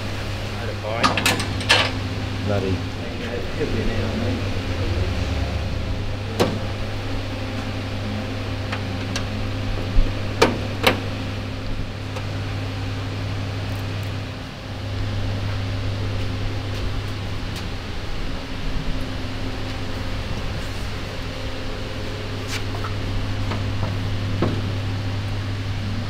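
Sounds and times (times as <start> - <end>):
steady low hum: 0.0 - 26.0
metal panels clicking and knocking: 1.0 - 2.0.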